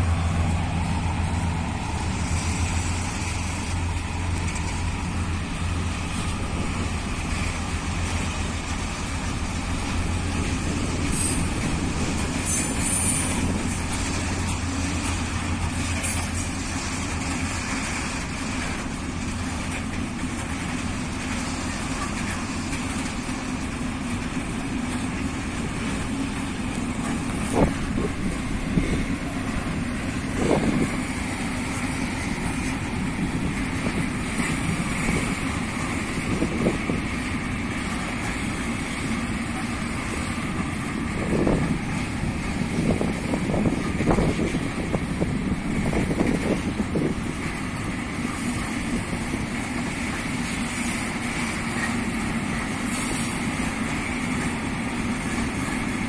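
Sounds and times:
freight train wheels rumbling: 0:00.0 - 0:56.0
high wheel squeals: 0:11.0 - 0:14.4.

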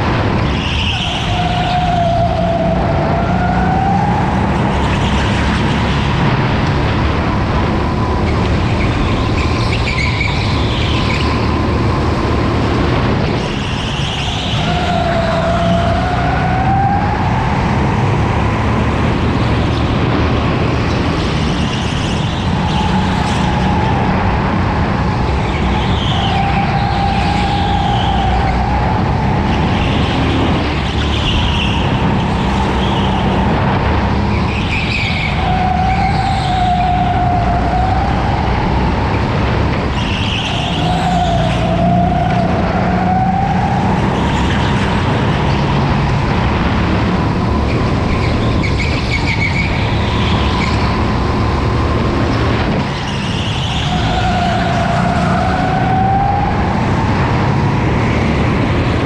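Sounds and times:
tyre squeal: 0:25.3 - 0:33.4, 0:34.2 - 0:39.1, 0:39.8 - 0:45.0, 0:47.6 - 0:51.1, 0:52.9 - 0:56.7.

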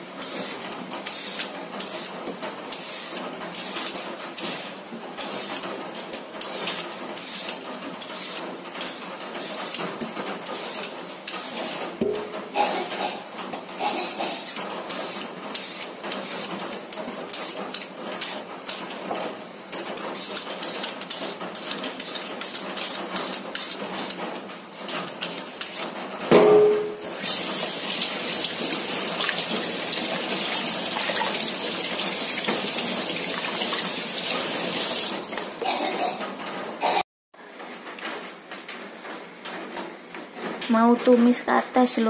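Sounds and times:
peeler scraping fruit skin: 0:06.4 - 0:08.5, 0:09.4 - 0:11.9, 0:20.1 - 0:24.2
sharp knock with ring: 0:26.3 - 0:27.0
tap water running into sink: 0:27.1 - 0:35.5.

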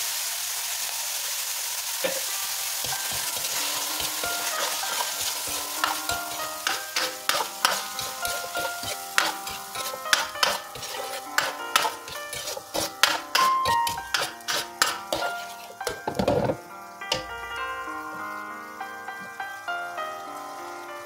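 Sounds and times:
sauce sizzling in wok: 0:00.0 - 0:21.0
ladle scraping and knocking pan: 0:02.8 - 0:17.3.

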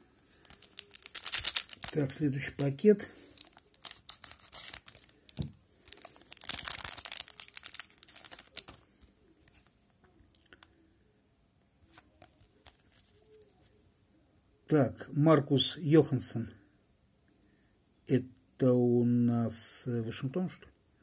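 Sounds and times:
wrapper tearing and crinkling: 0:00.4 - 0:08.8.

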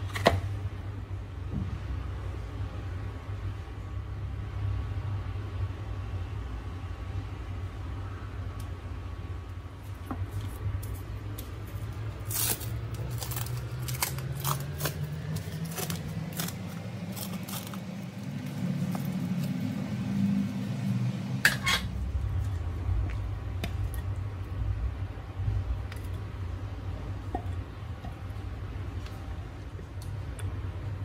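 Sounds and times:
low hum: 0:00.6 - 0:31.0
cling film crinkling: 0:10.8 - 0:19.9.

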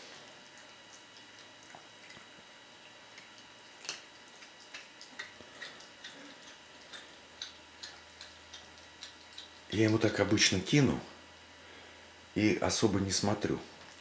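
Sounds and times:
cat chewing and crunching: 0:00.0 - 0:10.3.

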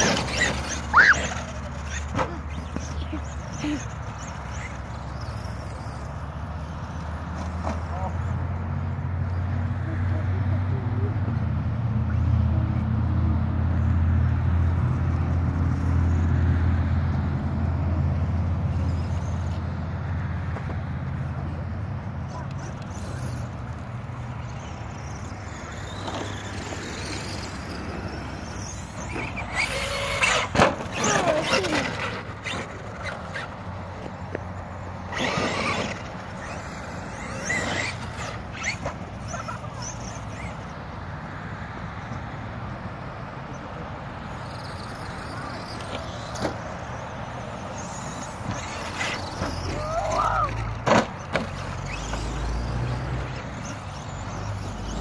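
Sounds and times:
toy truck motor whines: 0:00.0 - 0:07.6, 0:22.3 - 0:40.9, 0:44.3 - 0:55.0.

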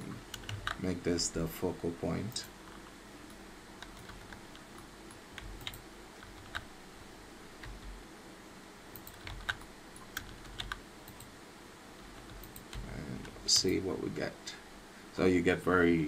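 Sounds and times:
faint room noise: 0:00.0 - 0:16.0
keyboard and mouse clicks: 0:00.3 - 0:00.8, 0:02.4 - 0:06.7, 0:09.0 - 0:11.3, 0:12.2 - 0:13.8.

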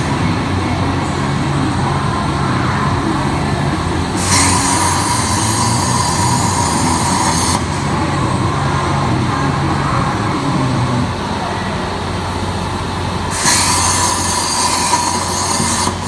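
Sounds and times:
low machinery hum: 0:00.0 - 0:16.0
plasma torch hissing: 0:04.1 - 0:08.0, 0:13.3 - 0:16.0.

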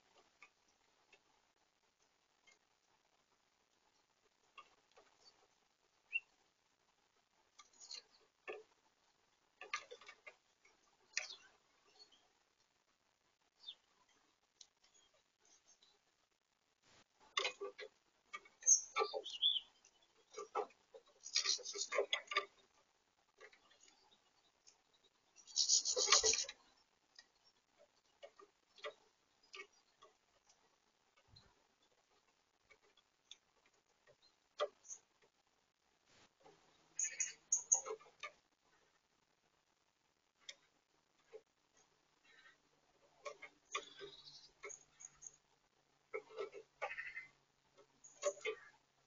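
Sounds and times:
beaks pecking seed: 0:07.4 - 0:12.7, 0:17.2 - 0:35.4, 0:36.3 - 0:39.0, 0:40.4 - 0:49.0.

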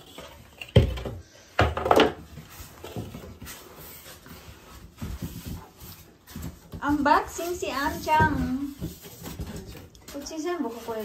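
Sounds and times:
cardboard rustling scrape: 0:02.3 - 0:11.0.

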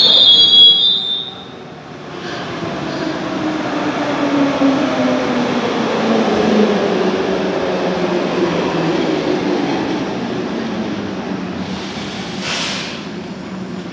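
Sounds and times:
train braking to a stop: 0:00.0 - 0:04.7, 0:11.5 - 0:13.7
short hiss: 0:11.6 - 0:13.2.

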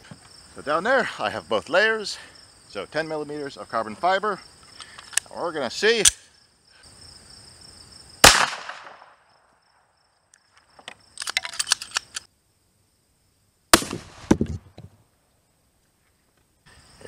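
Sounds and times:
crickets chirping: 0:00.0 - 0:17.0
pistol shot with echo: 0:08.2 - 0:09.2, 0:13.8 - 0:14.3.

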